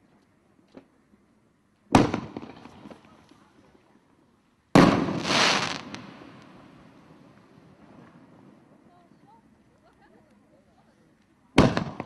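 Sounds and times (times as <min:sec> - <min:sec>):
firework reports: 0:04.8 - 0:07.0
hissing firework crackle: 0:04.8 - 0:08.2.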